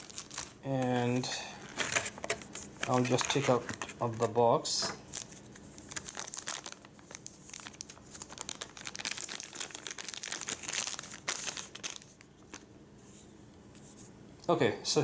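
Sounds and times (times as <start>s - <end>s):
plastic bag crinkling: 0.0s - 4.4s, 5.0s - 12.7s.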